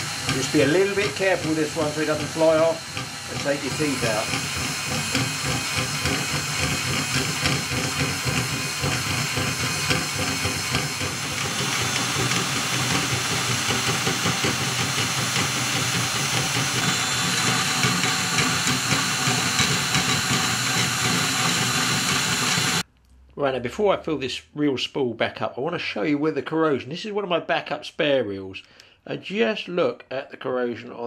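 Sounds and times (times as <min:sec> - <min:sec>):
cordless drill running: 0:00.0 - 0:22.8.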